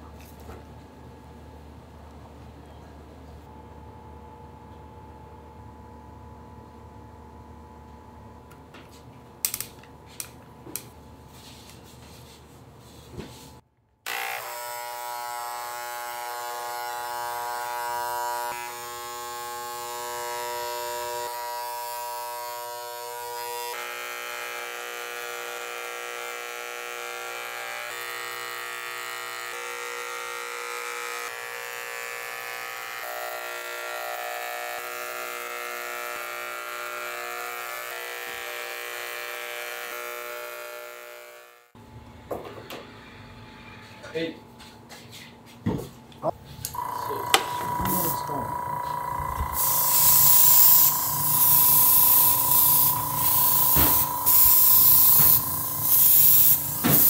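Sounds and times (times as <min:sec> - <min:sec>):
electric paint sprayer buzzing: 0:14.1 - 0:41.8, 0:46.7 - 0:57.0.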